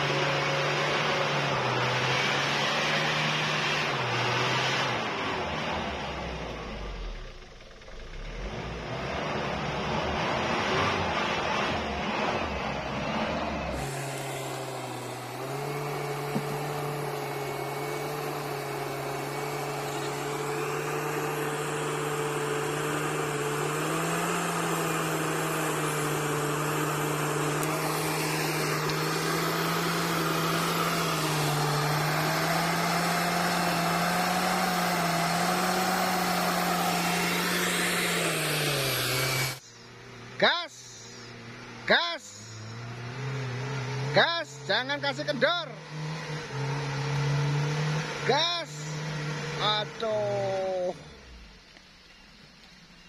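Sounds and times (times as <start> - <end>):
motor running with high hum: 13.7 - 40.1.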